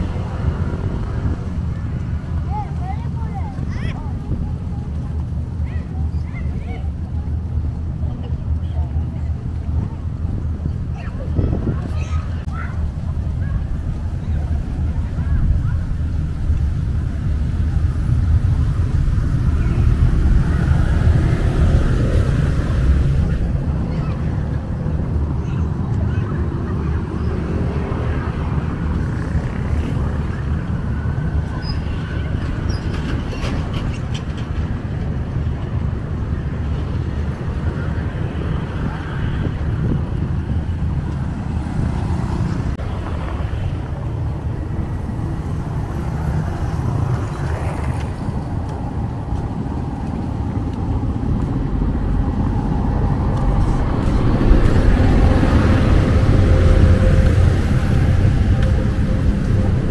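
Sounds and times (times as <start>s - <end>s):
street traffic rumble: 0.0s - 59.9s.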